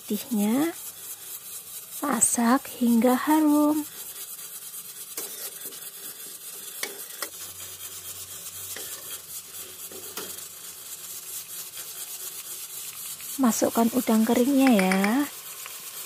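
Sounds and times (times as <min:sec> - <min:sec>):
garlic sizzling in oil: 0:00.0 - 0:16.0
spatula scraping wok: 0:00.0 - 0:16.0
spatula clicking against wok: 0:14.5 - 0:15.8.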